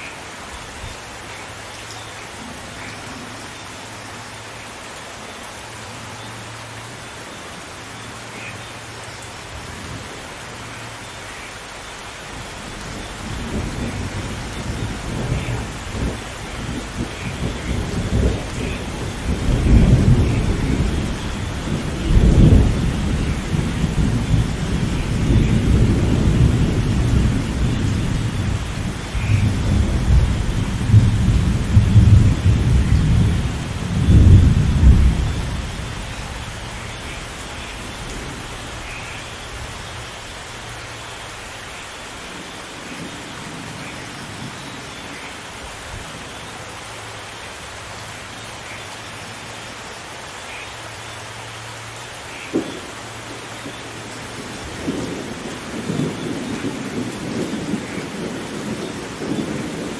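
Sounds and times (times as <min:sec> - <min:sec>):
rain falling: 0:00.0 - 0:59.9
thunder rolling: 0:13.0 - 0:36.8.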